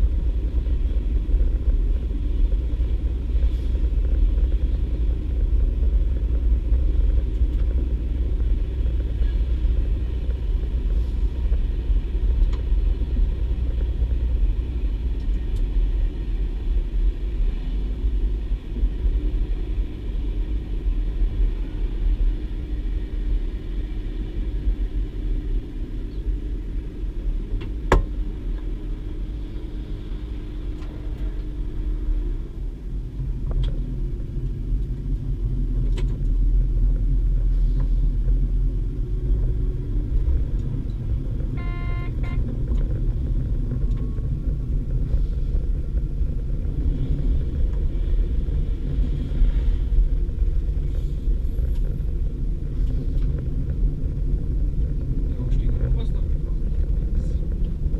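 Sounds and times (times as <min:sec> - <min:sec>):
train diesel engine rumble: 0:00.0 - 0:57.9
humming tone: 0:39.2 - 0:46.2.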